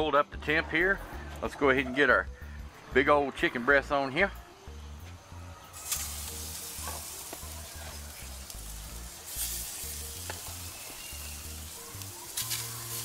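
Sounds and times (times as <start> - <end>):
background music bass notes: 0.0 - 13.0
chicken sizzling on a grill: 5.7 - 13.0.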